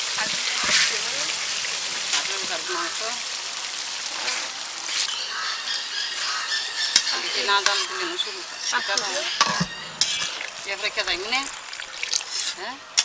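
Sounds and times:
curry simmering and sizzling: 0.0s - 13.0s
metal spatula stirring in pot: 6.9s - 11.1s, 12.1s - 13.0s.

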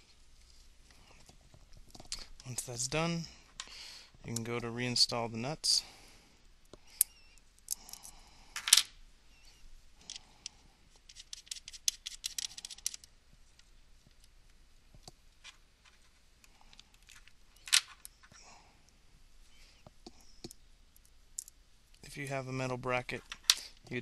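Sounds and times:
metal nuts clicking and scraping: 11.1s - 13.1s.

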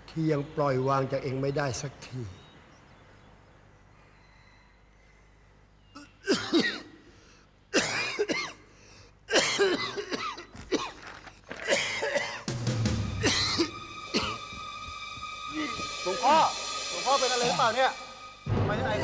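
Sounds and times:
old man coughing: 6.0s - 7.0s, 7.7s - 8.7s, 9.3s - 11.0s, 11.6s - 12.5s, 13.2s - 14.5s
background music: 11.6s - 19.0s.

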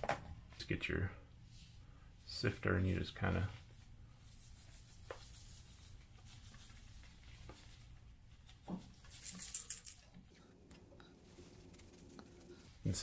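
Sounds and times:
soil rustling in a mesh sifter: 11.0s - 13.0s.

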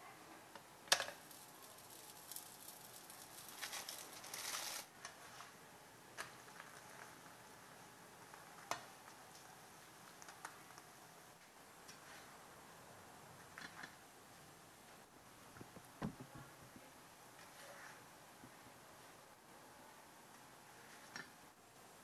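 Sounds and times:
faint sizzling: 0.9s - 5.4s.

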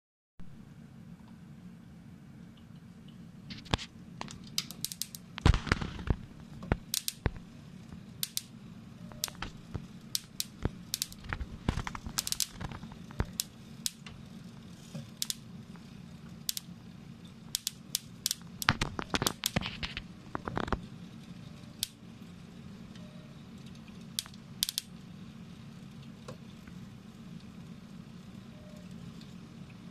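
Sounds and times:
steady low hum: 0.4s - 29.9s
metal printer crackling and snapping: 3.5s - 7.4s, 9.1s - 14.1s, 17.5s - 20.8s, 24.2s - 24.9s.

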